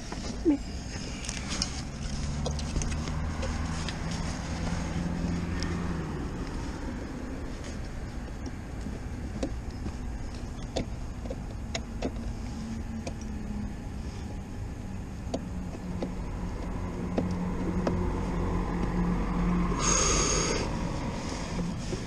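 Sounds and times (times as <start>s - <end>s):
handling clicks and knocks: 7.6s - 13.4s, 15.2s - 19.0s.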